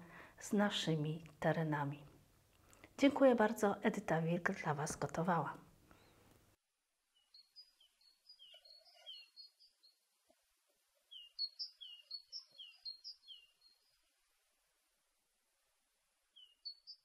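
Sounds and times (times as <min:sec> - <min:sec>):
songbird singing: 0:07.1 - 0:10.2, 0:11.0 - 0:14.2, 0:16.3 - 0:17.0.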